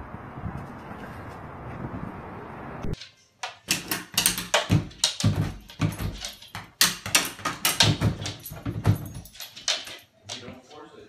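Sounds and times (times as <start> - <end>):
pet door flap clattering: 3.7 - 10.4.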